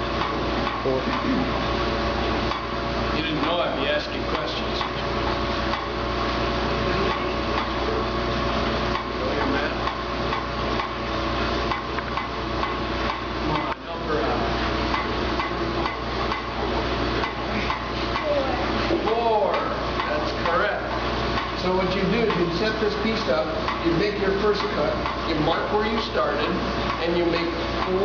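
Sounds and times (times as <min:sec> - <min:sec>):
machinery humming: 0:00.0 - 0:28.0.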